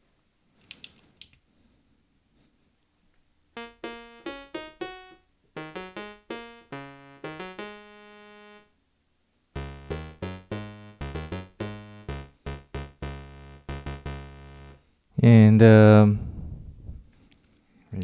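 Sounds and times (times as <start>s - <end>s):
synthesizer playing short notes: 3.6s - 8.7s, 9.6s - 14.8s.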